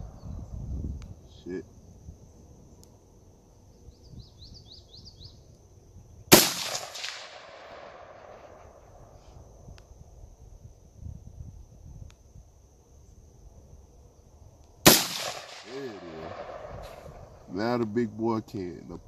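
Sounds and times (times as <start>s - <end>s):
high insect buzz: 0.0s - 19.0s
bird chirps: 3.7s - 5.5s
rifle shot with echo: 6.3s - 8.7s, 14.8s - 17.4s.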